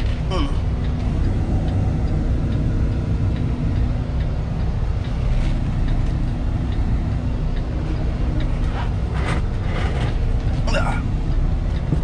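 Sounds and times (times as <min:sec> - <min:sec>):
truck diesel engine rumbling: 0:00.0 - 0:12.0.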